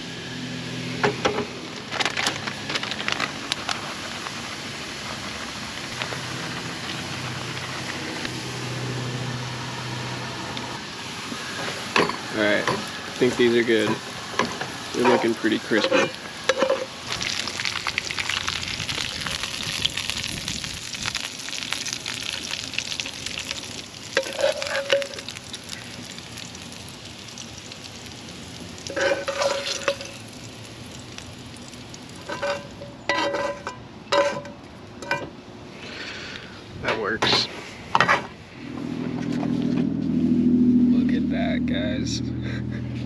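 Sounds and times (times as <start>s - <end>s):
fries sizzling in hot oil: 0.0s - 33.7s
metal cookware clanks: 13.8s - 16.9s, 32.3s - 35.3s.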